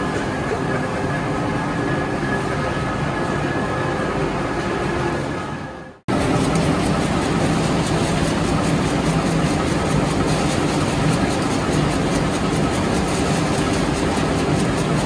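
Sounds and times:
pellet mill machinery running: 0.0 - 15.0.

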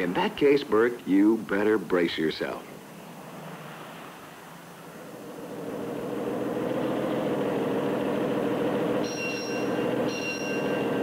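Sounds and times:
short high ringing tones: 9.0 - 11.0.

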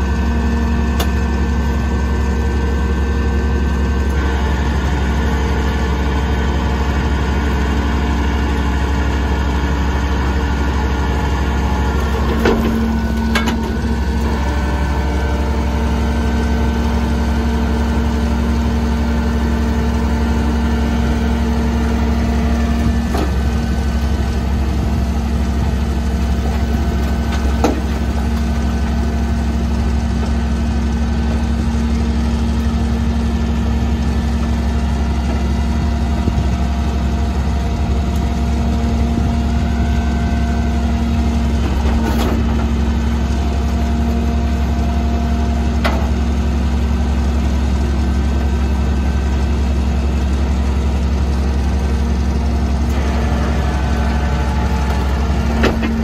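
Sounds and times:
garbage truck engine and hydraulics: 0.0 - 56.0
metal knocks from dumpster: 12.2 - 13.8.

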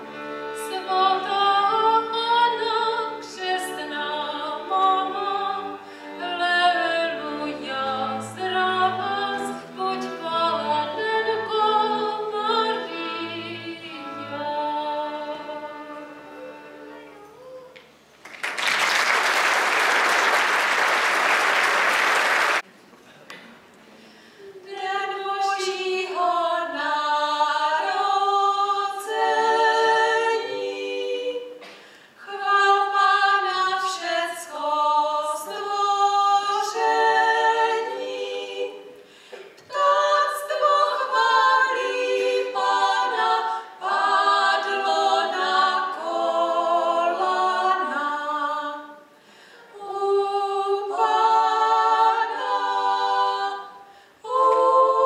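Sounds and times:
mixed choir singing a cappella: 0.0 - 17.2, 24.4 - 55.0.

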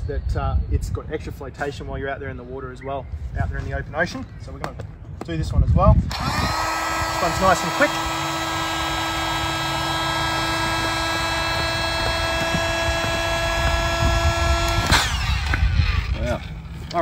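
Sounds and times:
air inflator humming: 6.1 - 15.6.

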